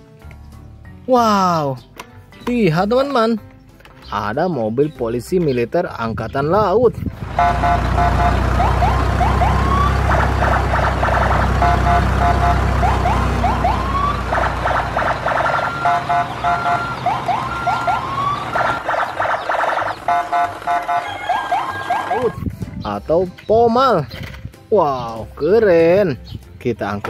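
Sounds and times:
toy siren beeps and whoops: 7.4s - 10.1s, 11.6s - 14.2s, 15.1s - 22.4s.

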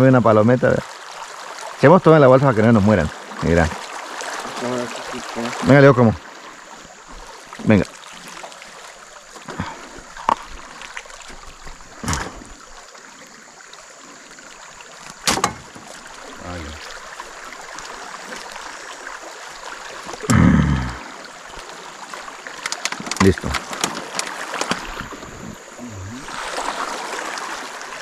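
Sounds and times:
river water washing around boat: 0.0s - 28.0s
deep thump: 15.2s - 15.8s
sharp knocks on boat: 15.2s - 15.9s.

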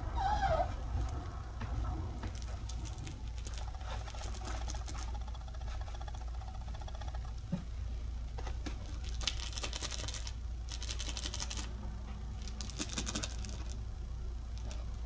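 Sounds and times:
steady low hum: 0.0s - 15.0s
toy rattling ticks: 2.3s - 7.5s, 8.9s - 11.7s.

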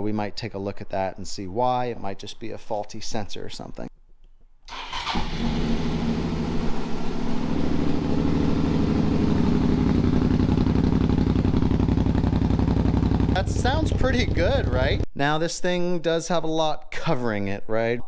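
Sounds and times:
motorcycle engine starting and idling: 4.7s - 15.0s.

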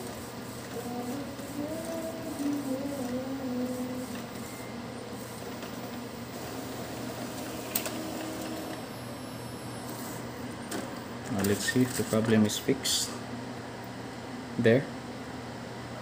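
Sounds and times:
inkjet printer printing: 0.0s - 12.6s
printer click: 6.4s - 8.8s.

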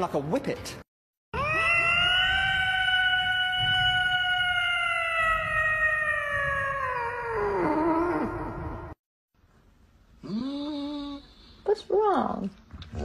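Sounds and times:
cat yowling: 1.4s - 8.5s.

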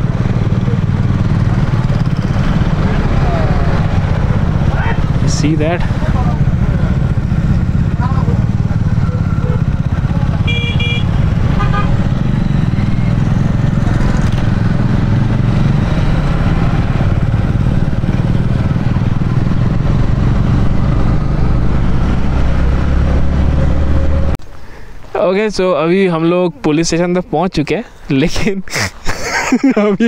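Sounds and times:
motorcycle engine running: 0.0s - 24.3s
short vehicle horn beeps: 10.4s - 11.9s.

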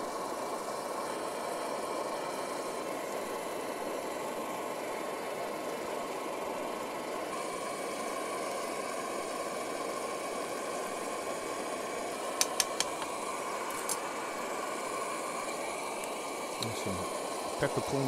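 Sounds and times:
stove burner rushing: 6.1s - 18.0s.

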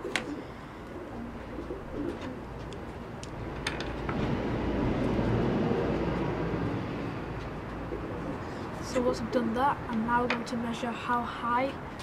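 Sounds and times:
pigeon cooing: 0.0s - 2.6s.

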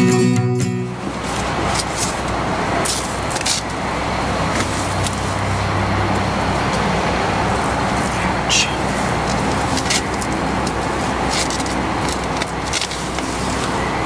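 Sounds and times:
car rumbling: 0.6s - 14.0s
papers rustling: 9.2s - 13.8s.

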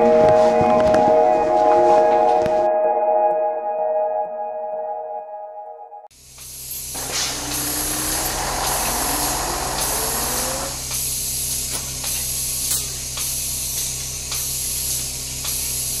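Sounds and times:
steady electronic hiss: 6.2s - 16.0s
rising electronic tones: 7.0s - 10.9s
soft pulses: 7.0s - 10.9s
low hum: 7.0s - 11.0s.

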